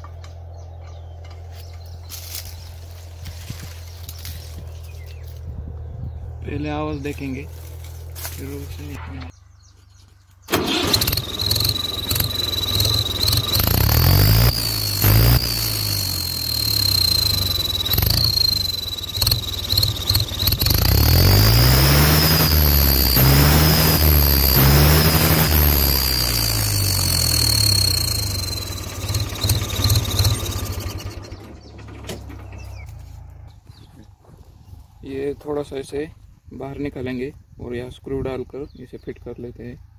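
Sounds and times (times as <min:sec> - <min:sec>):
tractor engine revving: 0:10.4 - 0:34.4
exhaust whistle whine: 0:10.5 - 0:31.6.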